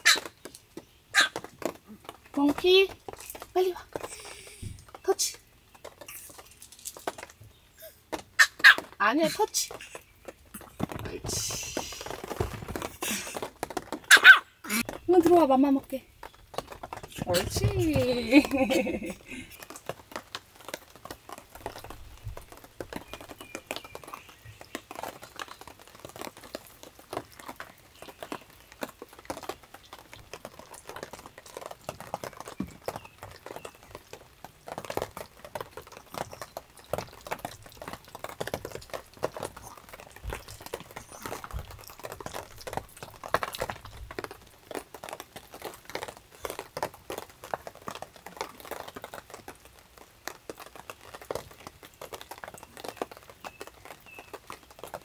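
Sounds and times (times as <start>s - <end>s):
dogs crunching food: 16.2s - 49.5s.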